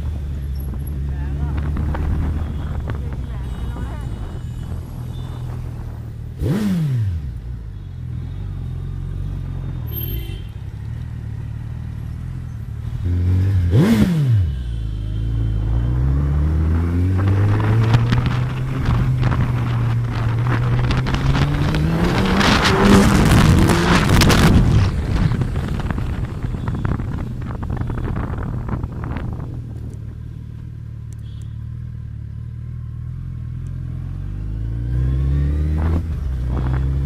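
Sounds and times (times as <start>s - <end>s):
motorcycle engine idling and revving: 0.0s - 37.0s
wind buffeting microphone: 17.1s - 30.1s.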